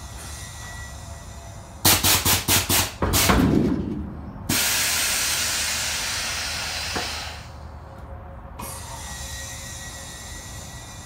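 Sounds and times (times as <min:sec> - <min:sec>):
steady hiss of air: 0:00.0 - 0:02.9, 0:04.5 - 0:07.8, 0:08.6 - 0:11.0
short bursts of air: 0:04.5 - 0:07.6.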